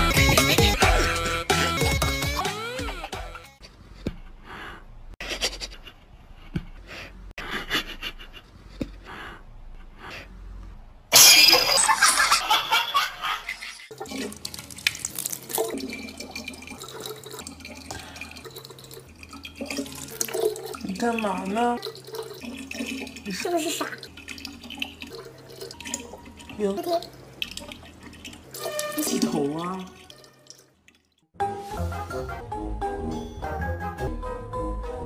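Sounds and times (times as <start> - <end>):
water running from a tap: 13.9 - 31.2.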